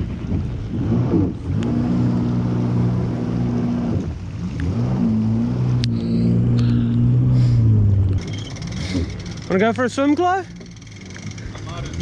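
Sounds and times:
jet ski engine running: 0.0s - 12.0s.

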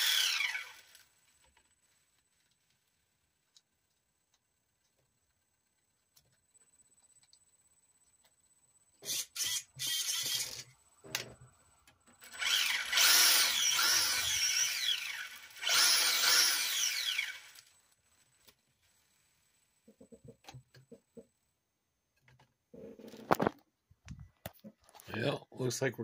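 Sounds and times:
small electric motor whirring: 0.0s - 1.2s, 9.0s - 10.7s, 12.2s - 17.9s.

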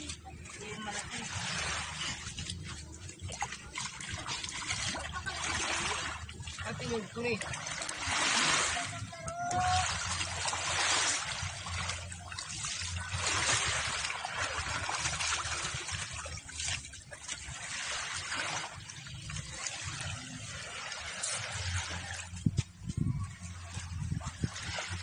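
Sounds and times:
shallow water washing on shore: 0.0s - 25.0s.

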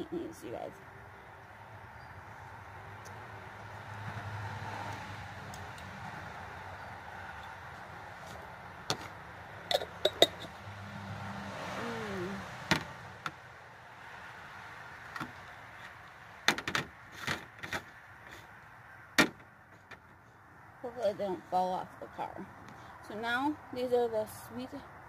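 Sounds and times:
glass jar set down: 9.7s - 10.5s.

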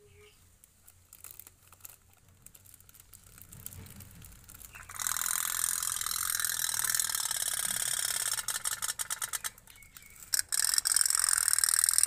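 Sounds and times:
toy steam boat boiler rattling: 2.6s - 12.0s.

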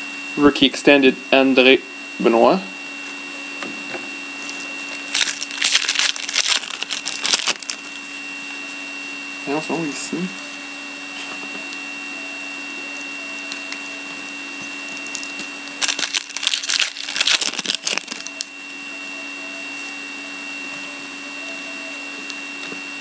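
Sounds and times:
electrical hum: 0.0s - 23.0s
foil pack crackling rustle: 4.4s - 8.1s, 14.9s - 18.5s.

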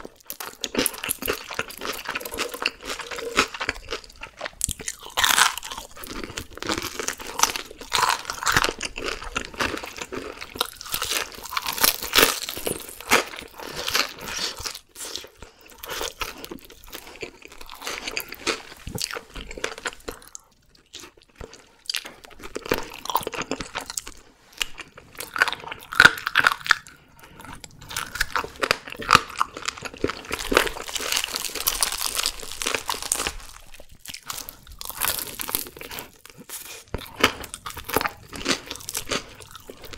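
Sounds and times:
crunching and chewing fried chicken: 0.0s - 39.9s.

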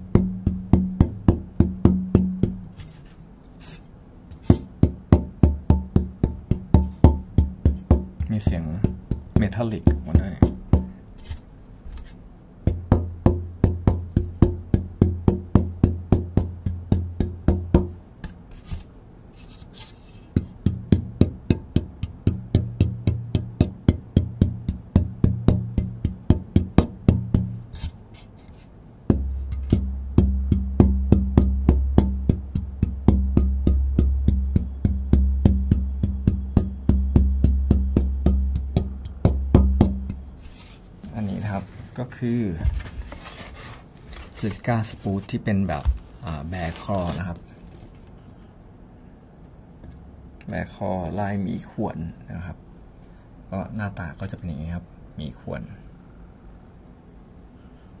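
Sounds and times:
taps on wooden guitar top ringing: 4.5s - 11.0s.

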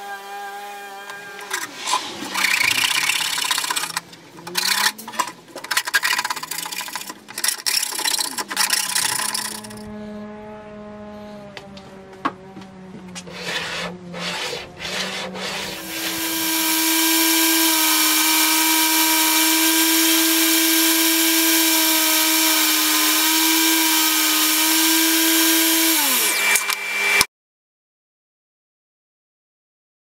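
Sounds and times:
table saw whining: 0.0s - 4.0s, 5.7s - 10.0s, 13.2s - 27.3s
scraping and knocking handling noises: 3.4s - 9.8s.

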